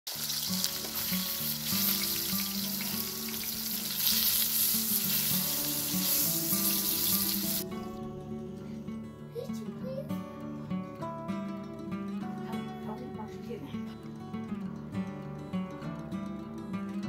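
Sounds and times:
slices sizzling in hot oil: 0.1s - 7.6s
background music: 0.1s - 17.0s.

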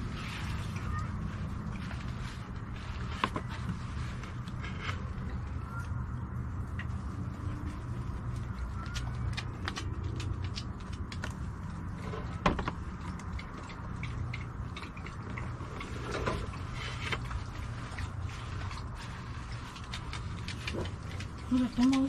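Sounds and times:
steady low hum: 0.0s - 22.0s
plastic plant pots clicking: 8.3s - 13.6s.

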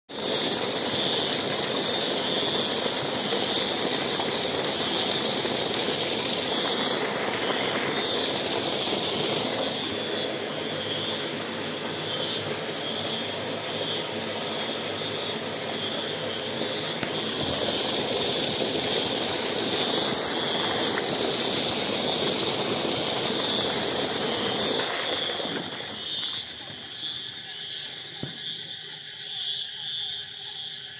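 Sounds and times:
water rushing from pump pipe: 0.1s - 28.3s
frogs calling in chorus: 25.1s - 30.9s.

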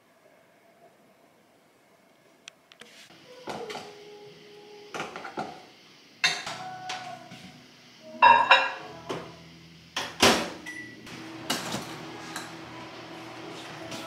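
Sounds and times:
dishes and utensils clinking: 6.2s - 7.1s, 8.2s - 9.2s, 10.0s - 12.8s.

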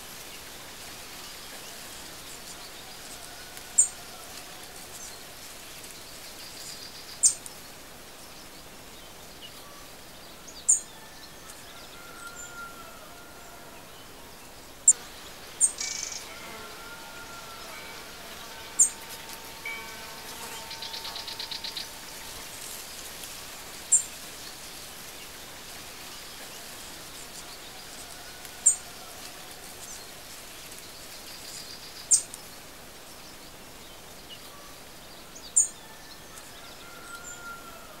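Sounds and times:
background hiss: 0.0s - 38.0s
distant bird calls: 14.8s - 23.2s.

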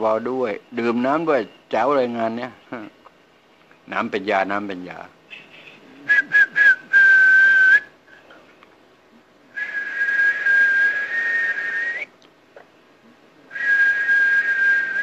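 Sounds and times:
man whistling high note: 6.1s - 7.9s, 9.6s - 12.1s, 13.5s - 15.0s.

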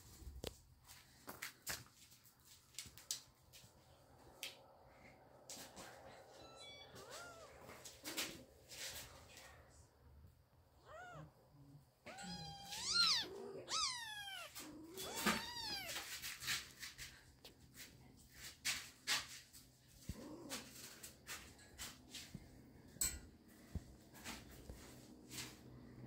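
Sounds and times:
kittens meowing: 6.3s - 7.7s, 10.8s - 11.4s, 12.0s - 16.1s
kittens wrestling on blanket: 12.1s - 22.5s.

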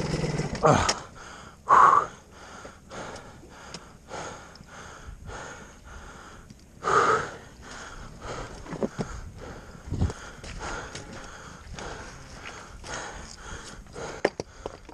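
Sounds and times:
person panting: 0.7s - 14.9s.

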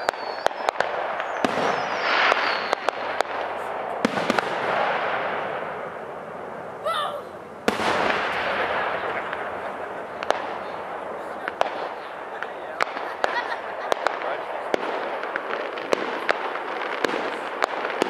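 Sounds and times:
firework shell bursts: 0.0s - 6.0s
rising firework whistle: 0.0s - 14.2s
fireworks hissing and crackling: 0.0s - 18.0s.

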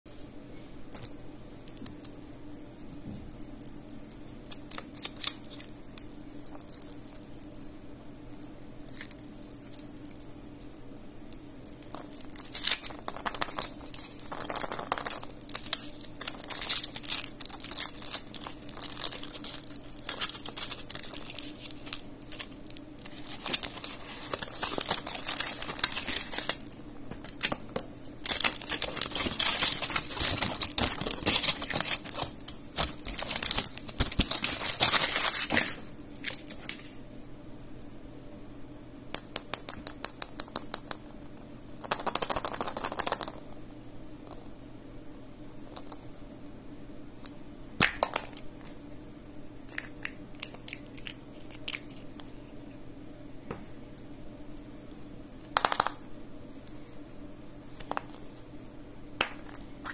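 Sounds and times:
foil wrappers crinkling and tearing: 3.6s - 7.7s, 11.4s - 37.0s, 49.7s - 52.0s.

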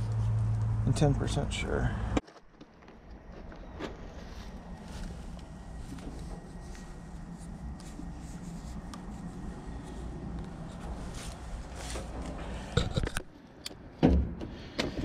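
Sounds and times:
steady low rumble: 0.0s - 2.2s, 2.8s - 13.5s
rustling and handling noises: 2.2s - 13.4s.

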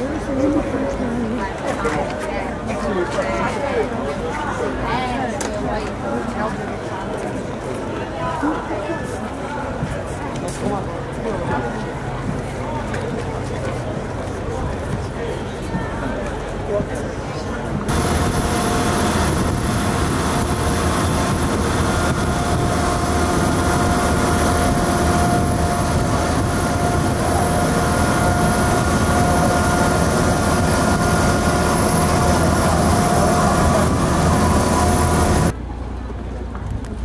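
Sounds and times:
boat diesel engine drone: 16.2s - 37.0s
hiss of water and wind: 17.9s - 35.5s
whining tones: 17.9s - 35.5s.

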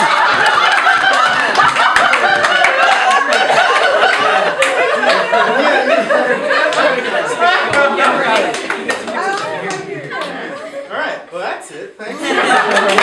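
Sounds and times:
scattered clapping: 0.0s - 5.4s, 6.5s - 10.7s, 12.6s - 13.0s
audience laughing: 0.0s - 10.9s, 12.0s - 13.0s.

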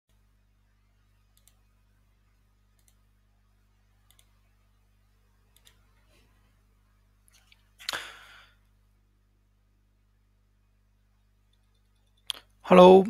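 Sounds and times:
low electrical hum: 0.1s - 13.0s
computer mouse clicks: 1.3s - 1.7s, 2.7s - 3.1s, 4.0s - 4.4s, 5.5s - 6.0s.

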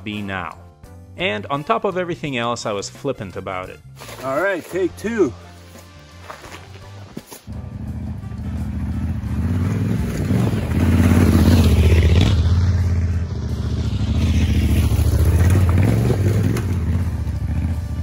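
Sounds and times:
motorcycle engine on dirt trail: 7.5s - 18.0s.

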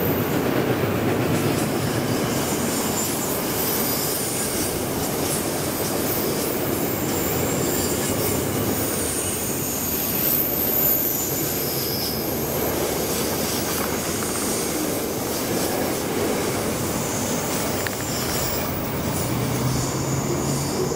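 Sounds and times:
freight train rolling past: 0.0s - 20.9s
high-pitched wheel squeal: 2.0s - 14.8s.

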